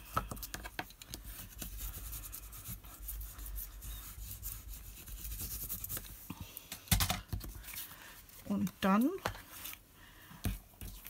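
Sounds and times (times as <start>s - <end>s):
bone folder rubbing over paper: 1.2s - 6.3s.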